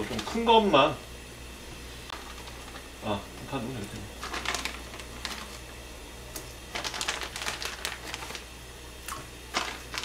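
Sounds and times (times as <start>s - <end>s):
plastic packaging rustling: 3.8s - 5.7s, 6.7s - 8.5s, 9.5s - 10.0s.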